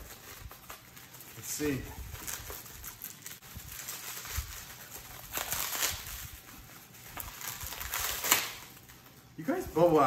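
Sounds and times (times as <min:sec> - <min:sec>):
bubble wrap rustling and crinkling: 0:00.0 - 0:10.0.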